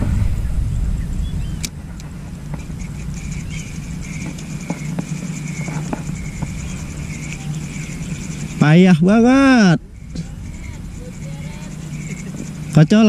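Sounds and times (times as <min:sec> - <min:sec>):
low steady hum: 0:00.0 - 0:13.0
fishing reel whirring: 0:02.4 - 0:13.0.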